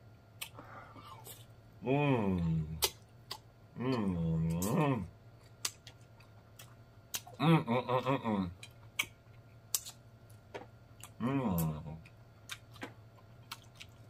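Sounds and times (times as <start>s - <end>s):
person humming mmm: 0.4s - 5.2s, 7.1s - 8.7s, 11.0s - 12.1s
wet chewing and lip smacks: 5.4s - 7.4s, 8.6s - 10.4s, 11.0s - 14.0s.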